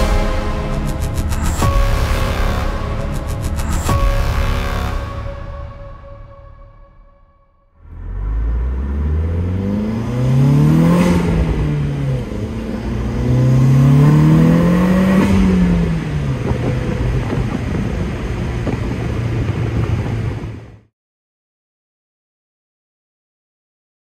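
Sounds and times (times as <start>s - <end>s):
exhaust rush: 0.0s - 20.6s
car engine accelerating: 7.8s - 20.6s.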